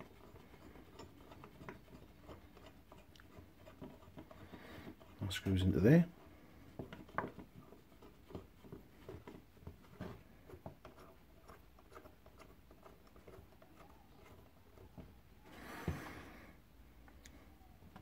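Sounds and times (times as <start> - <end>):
small metal clicks and scrapes: 0.0 - 5.2.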